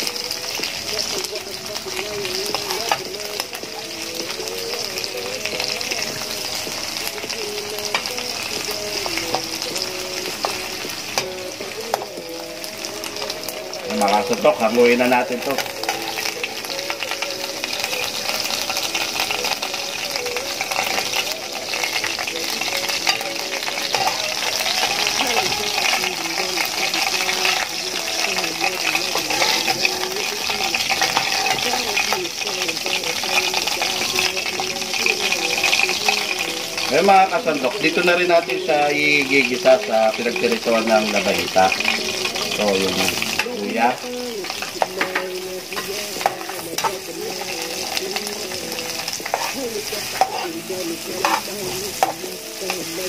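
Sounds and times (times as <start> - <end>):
fish sizzling in oil: 0.0 - 53.0
utensils clicking on pan: 2.3 - 4.0, 6.6 - 12.2, 13.9 - 53.0
metal spatula scraping a pan: 20.6 - 26.1, 28.3 - 32.6, 41.2 - 48.4, 49.1 - 53.0.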